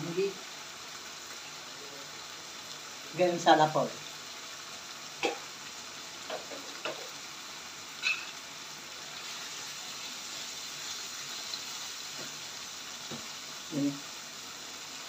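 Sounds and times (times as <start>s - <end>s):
curry sizzling in oil: 0.0s - 15.0s.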